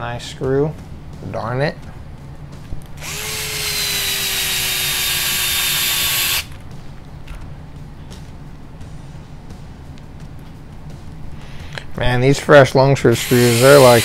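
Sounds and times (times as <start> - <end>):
electric screwdriver whining: 3.0 - 6.5, 13.1 - 14.0.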